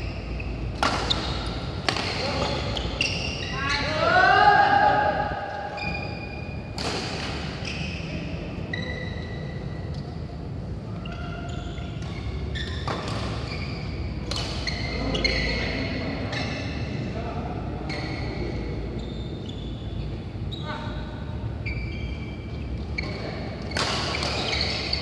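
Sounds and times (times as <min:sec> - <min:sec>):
shoes squeaking on court: 0:00.0 - 0:04.0, 0:10.9 - 0:17.0, 0:17.9 - 0:25.0
rackets hitting shuttlecock: 0:00.7 - 0:02.6, 0:14.2 - 0:14.8.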